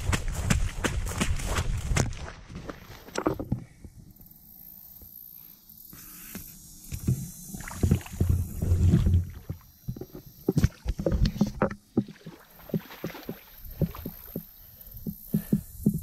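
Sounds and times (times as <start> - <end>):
feet splashing through water: 0.0 - 3.1, 10.5 - 14.5.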